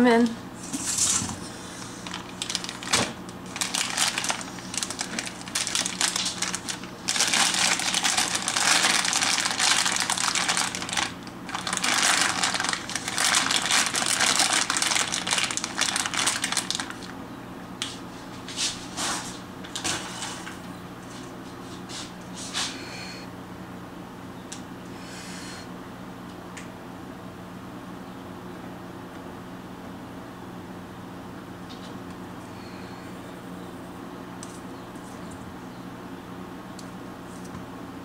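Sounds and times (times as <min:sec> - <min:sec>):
steady low hum: 0:00.0 - 0:38.0
crinkling and rustling: 0:00.7 - 0:17.2.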